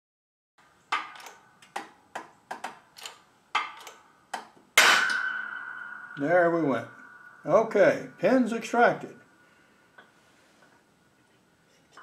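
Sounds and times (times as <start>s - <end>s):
sharp metallic clicks: 0.9s - 8.7s
loud bang with ringing tone: 4.8s - 9.9s.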